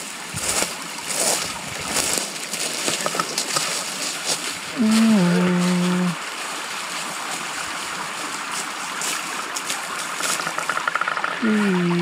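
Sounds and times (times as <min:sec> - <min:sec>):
water rushing over stones: 0:00.0 - 0:12.0
low voice-like call: 0:11.3 - 0:12.0.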